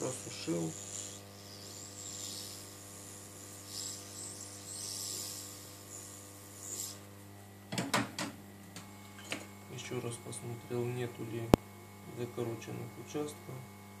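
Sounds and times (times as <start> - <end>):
hot air blowing: 0.0 - 7.1
electrical hum: 0.0 - 14.0.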